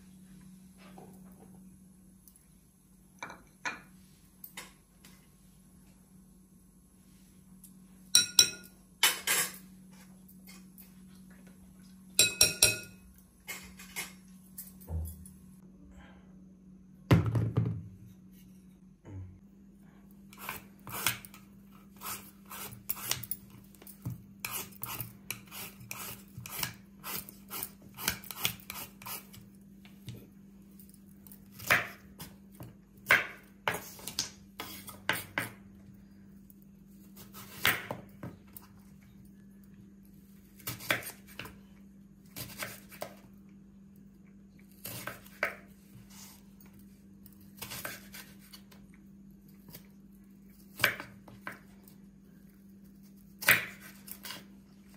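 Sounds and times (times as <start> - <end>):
peeler scraping banana: 20.3 - 23.4, 24.4 - 29.5.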